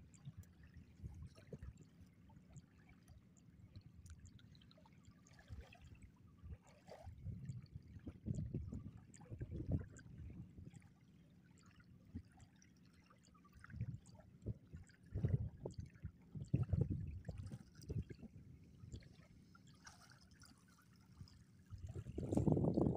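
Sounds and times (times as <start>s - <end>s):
water sloshing and splashing: 4.0s - 10.7s, 12.1s - 22.9s.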